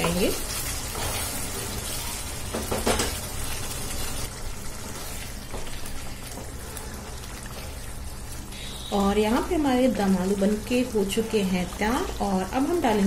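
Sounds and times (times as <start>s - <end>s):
wooden spatula scraping a pan: 0.0s - 2.2s.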